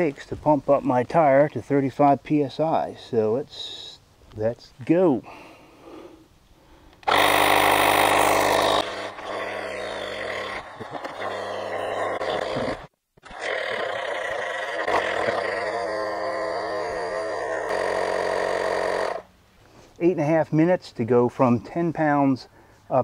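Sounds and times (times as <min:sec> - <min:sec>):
tire inflator compressor humming: 0:07.0 - 0:19.3.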